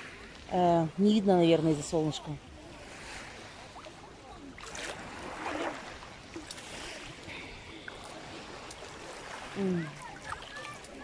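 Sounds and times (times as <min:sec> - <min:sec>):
water splashing around person wading: 0:02.7 - 0:11.0.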